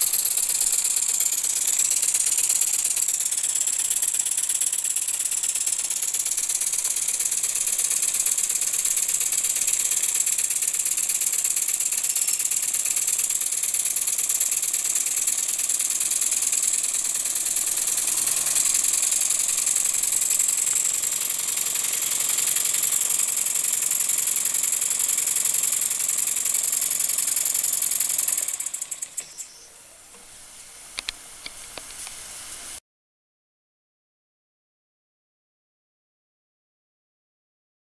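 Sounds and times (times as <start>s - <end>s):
toy steam engine clatter: 0.0s - 29.6s
steam hissing: 0.0s - 32.8s.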